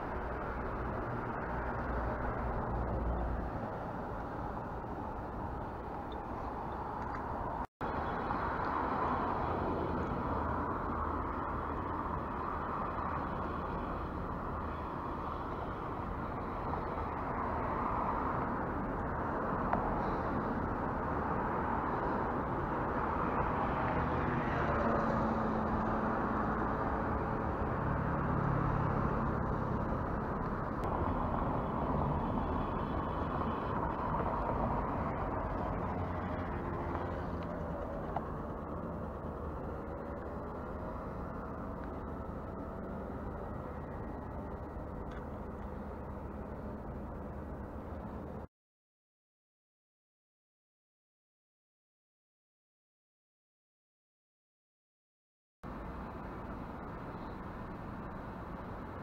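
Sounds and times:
engine passing by: 0.0 - 47.1
city traffic hum: 0.0 - 48.5, 55.6 - 59.0.

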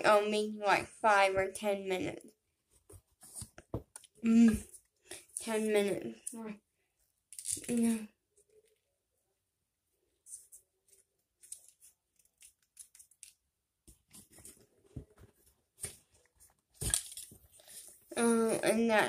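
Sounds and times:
hands fiddling with a pen: 10.2 - 18.0.

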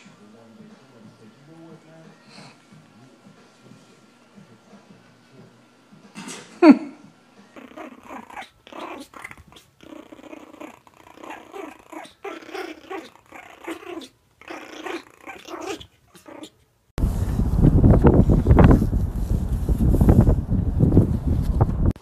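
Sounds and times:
puppies growling: 7.5 - 16.6
dog crying: 7.6 - 16.6
wind noise on microphone: 17.0 - 22.0.

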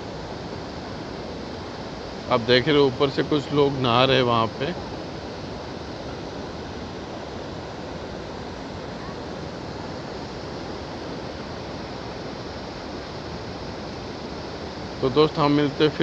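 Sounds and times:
waterfall rushing: 0.0 - 16.0.

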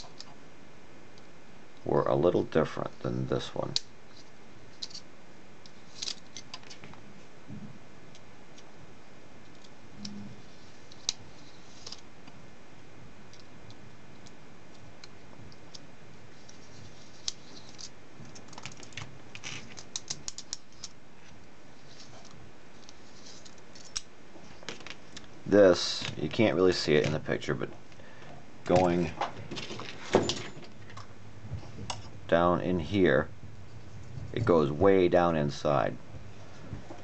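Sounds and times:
low hiss: 20.6 - 29.3.

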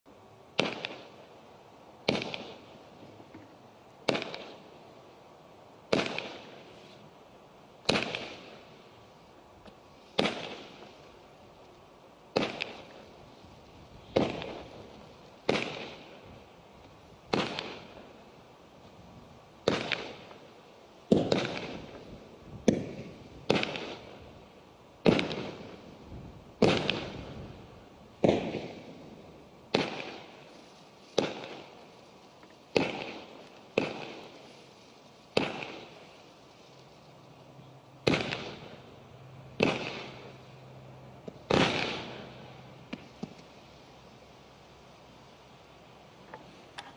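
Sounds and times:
firework tail hissing: 7.8 - 11.6.

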